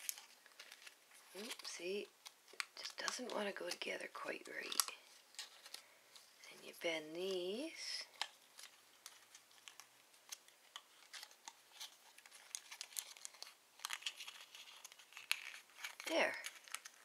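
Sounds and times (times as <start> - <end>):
cardboard crinkling and clicking: 0.0 - 5.8, 8.0 - 17.0.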